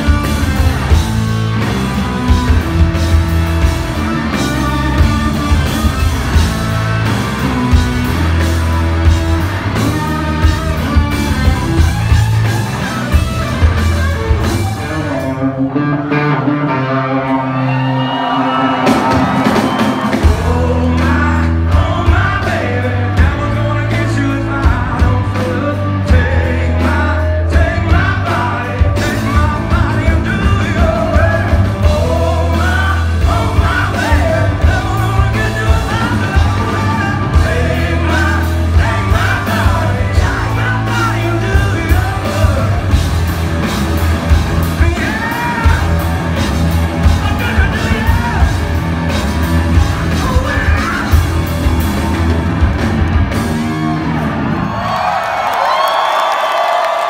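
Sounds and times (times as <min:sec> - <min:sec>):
live rock band: 0:00.0 - 0:57.0.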